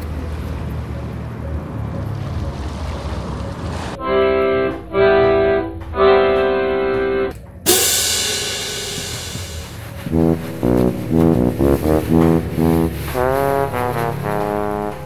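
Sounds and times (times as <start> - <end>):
held organ-like keyboard notes: 4.0 - 7.4, 10.0 - 15.0
loud whoosh: 7.7 - 13.2
steady noisy hiss: 7.7 - 14.7
low rumble: 7.7 - 15.0.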